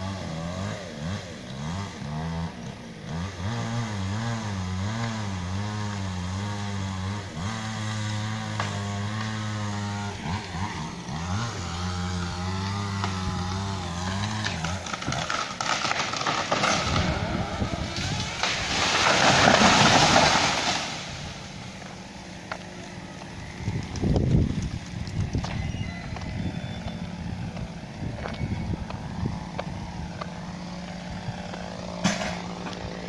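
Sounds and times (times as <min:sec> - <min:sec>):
chainsaw idling: 0:00.0 - 0:25.4, 0:28.7 - 0:33.0
loud rushing crackling noise: 0:14.5 - 0:21.5.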